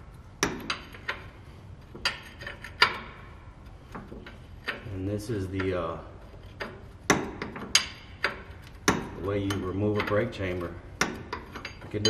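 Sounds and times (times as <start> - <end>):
wrench metal clicks: 7.4 - 12.0.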